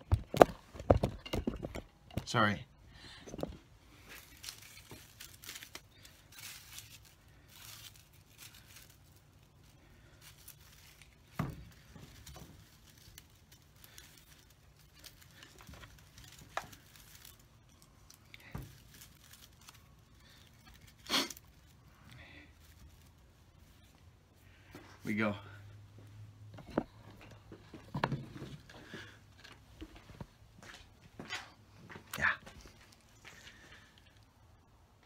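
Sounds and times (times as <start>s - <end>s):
plastic mesh wrap crinkling: 3.9s - 25.0s.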